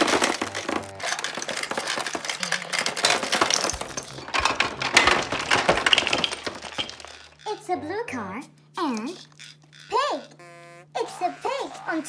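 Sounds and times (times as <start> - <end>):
candies rattling on plastic toy: 0.0 - 7.8, 8.8 - 10.4.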